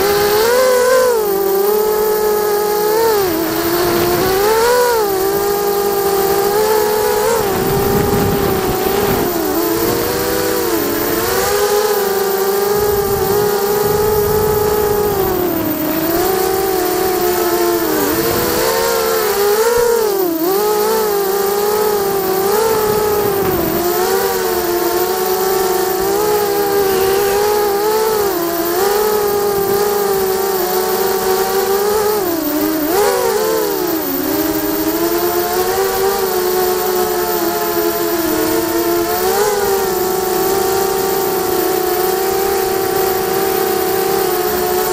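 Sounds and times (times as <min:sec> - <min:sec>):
wind buffeting microphone: 0:00.0 - 0:20.0, 0:20.8 - 0:30.3
drone motors buzzing whine: 0:00.0 - 0:44.9.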